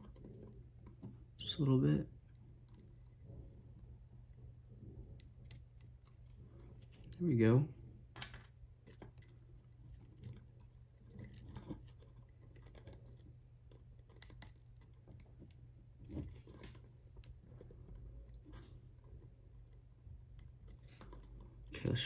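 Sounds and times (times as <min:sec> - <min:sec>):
low steady hum: 0:00.0 - 0:22.0
plastic parts clicking and scraping: 0:08.2 - 0:21.7.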